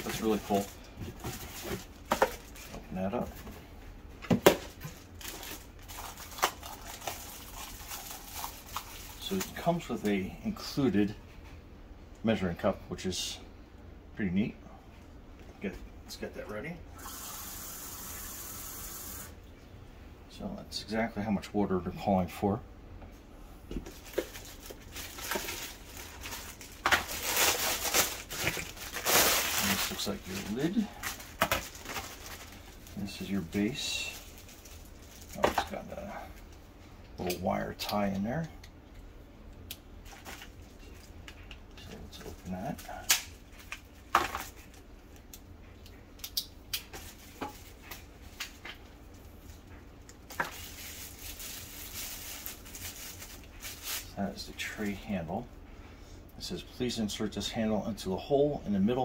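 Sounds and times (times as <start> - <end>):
plastic bag crinkling: 0.0 - 2.8, 4.6 - 9.8, 23.8 - 35.8, 49.2 - 54.2.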